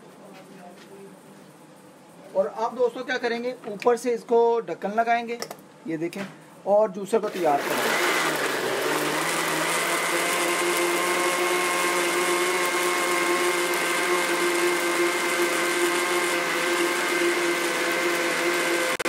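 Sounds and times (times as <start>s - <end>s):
blender motor whine: 7.4s - 19.0s.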